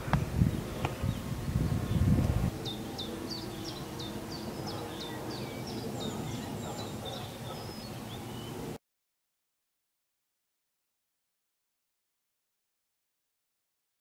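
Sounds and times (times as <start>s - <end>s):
bird chirping: 0.5s - 8.8s.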